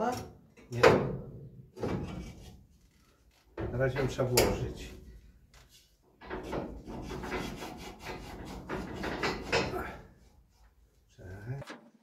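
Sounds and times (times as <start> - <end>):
bolt scraping and rubbing: 6.2 - 10.0.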